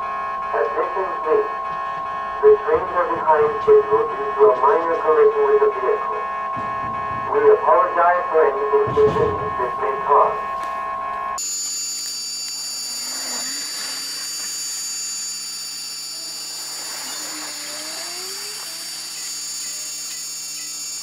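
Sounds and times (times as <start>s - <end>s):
level-crossing alarm ringing: 0.0s - 21.0s
approaching train whine: 11.9s - 21.0s.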